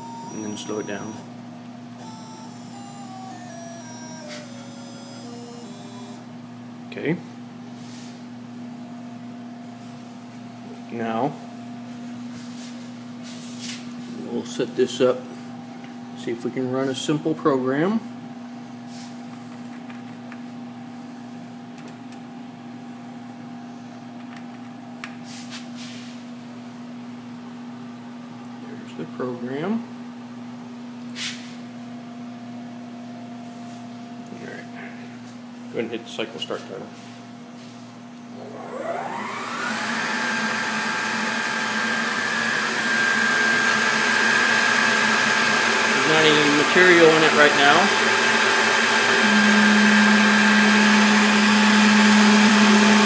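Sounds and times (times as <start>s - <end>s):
mill spindle motor whine: 0.0s - 7.6s, 35.6s - 53.0s
electrical hum and fan whir: 0.0s - 53.0s.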